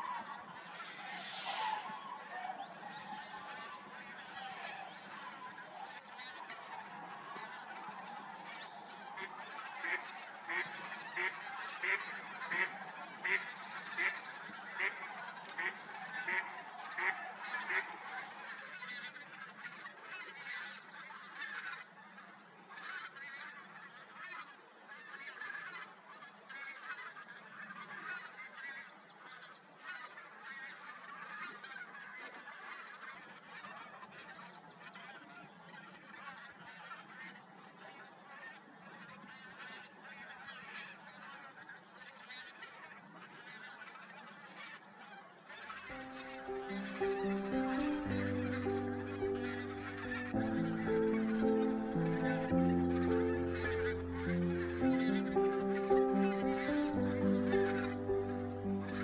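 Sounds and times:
geese honking: 0.0 - 20.9, 39.1 - 59.0.

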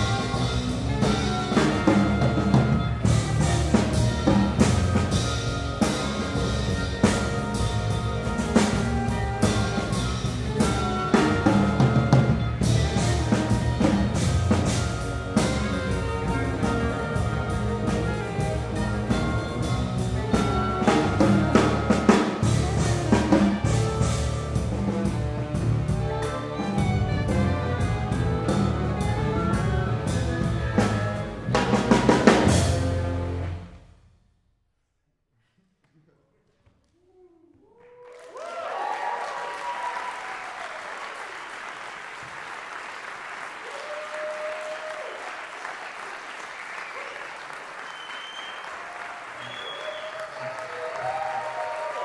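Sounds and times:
low bass notes: 0.0 - 33.8
live ensemble playing: 0.0 - 33.9, 48.6 - 52.0
audience applauding: 37.6 - 52.0.

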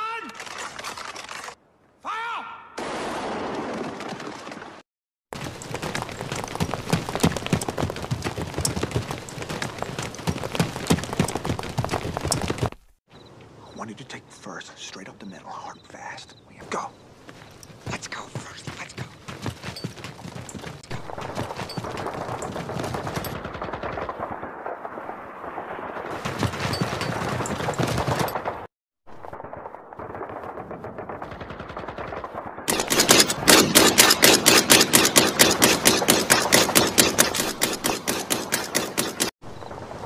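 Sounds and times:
machine-gun fire: 21.0 - 24.9, 30.0 - 39.3.

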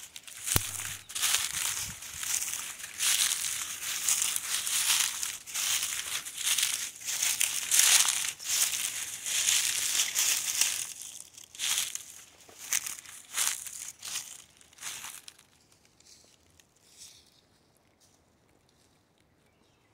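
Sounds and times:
footsteps crunching dry leaves: 0.0 - 18.2.

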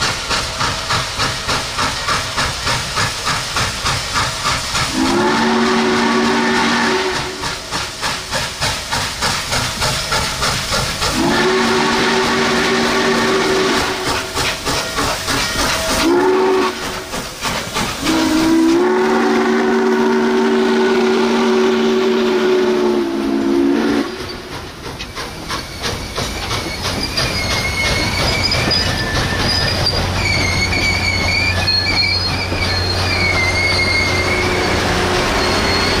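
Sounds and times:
train cars clickety-clack: 0.0 - 36.0
steam whistle chord: 4.9 - 7.6, 11.1 - 14.3, 16.0 - 17.1, 18.0 - 24.5, 33.0 - 36.0
wheel squeal: 25.0 - 36.0.

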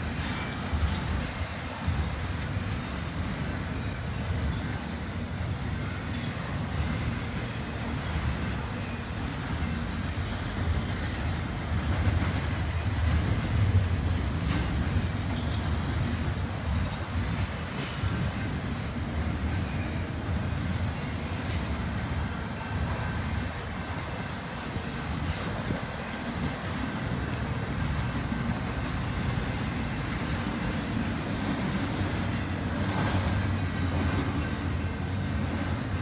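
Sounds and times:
steel wheels rumbling on rails: 0.0 - 36.0
clicks and clanks over rail joints: 22.7 - 35.8.

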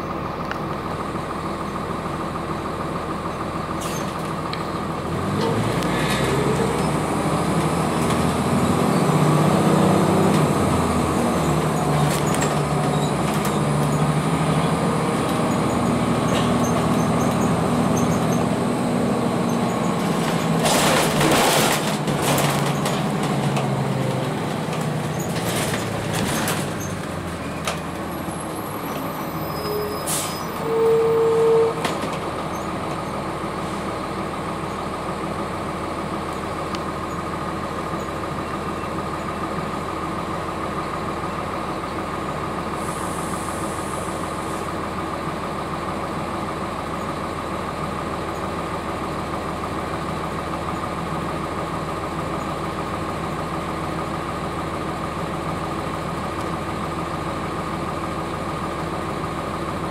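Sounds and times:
diesel engine idling with whine: 0.0 - 59.9.

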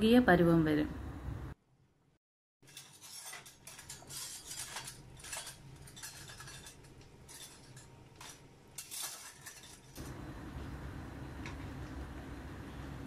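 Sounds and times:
spoon scraping and clinking pan: 2.6 - 10.0.

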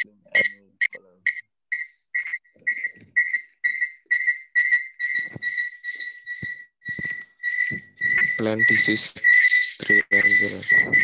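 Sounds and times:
repeating high-pitched tone: 2.2 - 11.0.

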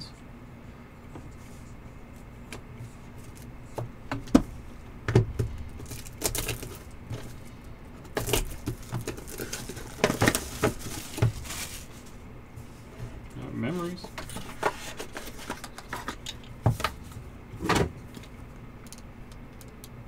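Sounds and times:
steady low hum: 0.0 - 20.0
plastic wrap crinkling: 5.8 - 7.4, 8.1 - 12.0.

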